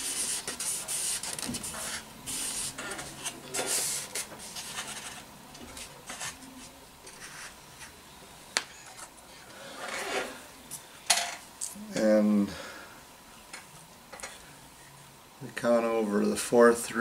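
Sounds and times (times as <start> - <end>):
rubbing and light handling: 0.0 - 8.0.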